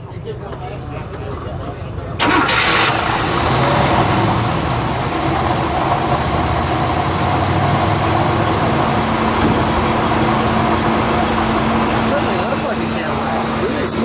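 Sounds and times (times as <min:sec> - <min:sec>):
car engine idling: 0:00.0 - 0:14.0
man talking: 0:12.0 - 0:14.0.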